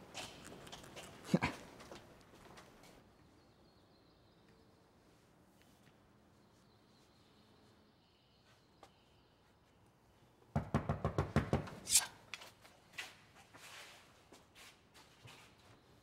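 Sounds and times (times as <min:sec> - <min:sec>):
rapid knocking on door: 0:10.6 - 0:11.7.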